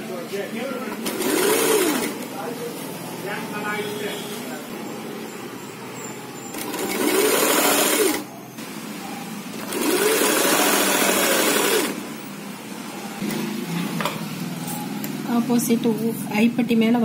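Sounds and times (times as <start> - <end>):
sewing machine stitching: 0.9 - 2.2, 6.5 - 8.3, 9.6 - 12.0.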